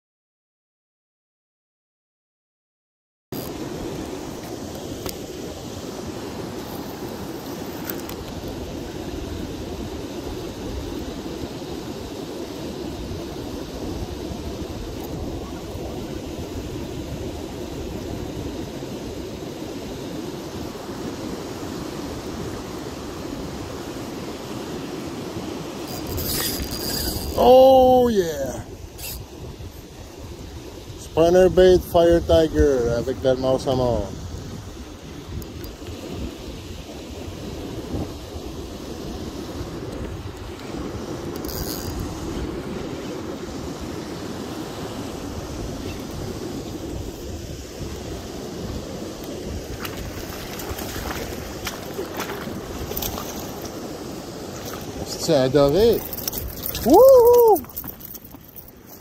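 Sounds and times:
river water rushing over rapids: 3.4 - 32.0, 32.8 - 59.0
river rapids rushing: 22.2 - 29.2, 40.6 - 59.0
wind buffeting microphone: 25.0 - 59.0.

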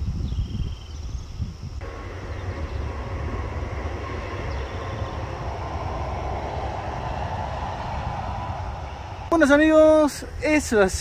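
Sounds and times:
road vehicle rumble: 1.5 - 10.4
faint whine: 1.8 - 10.4.

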